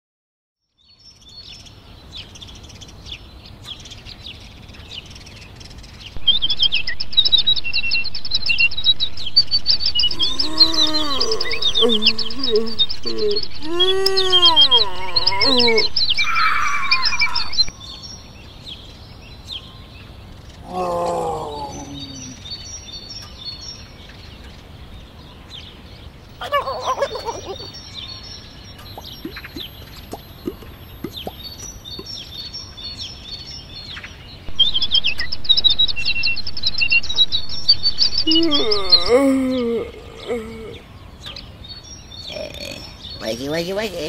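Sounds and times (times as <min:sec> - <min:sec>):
birds chirping and twittering: 0:00.6 - 0:44.0
low sliding bird calls: 0:06.3 - 0:17.7.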